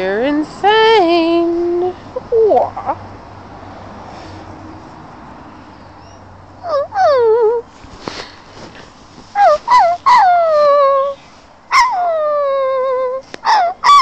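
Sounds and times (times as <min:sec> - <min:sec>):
dog whining: 0:06.6 - 0:07.7, 0:09.4 - 0:14.0.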